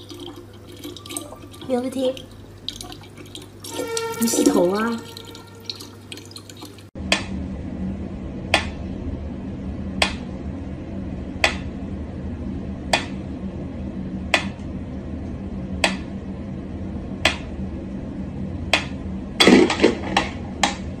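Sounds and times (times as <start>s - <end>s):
water running from a tap: 0.0s - 7.0s.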